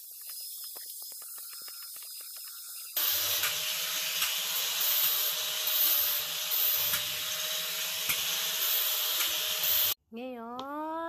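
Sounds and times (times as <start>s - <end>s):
motor whine: 2.9s - 10.0s
power tool grinding steel: 3.0s - 10.0s.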